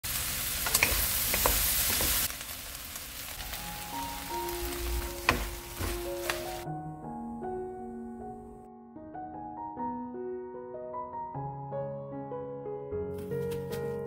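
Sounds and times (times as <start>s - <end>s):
onions sizzling in wok: 0.0s - 6.7s
wooden spatula knocking pan: 0.6s - 2.3s, 4.5s - 6.6s
soft piano music: 3.3s - 14.0s.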